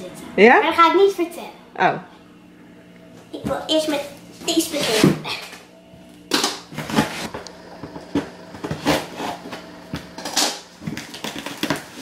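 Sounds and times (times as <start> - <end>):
cardboard box rasping and scraping: 6.8 - 7.3
packing tape pulled off box: 10.2 - 12.0.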